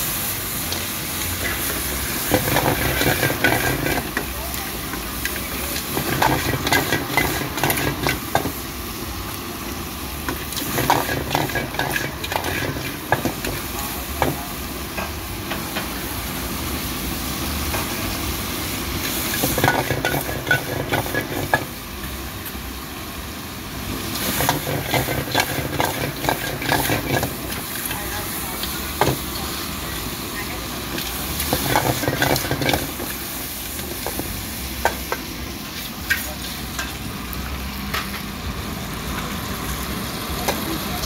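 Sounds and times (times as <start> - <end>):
food sizzling: 0.0 - 41.0
metal ladle scraping a wok: 24.2 - 27.9.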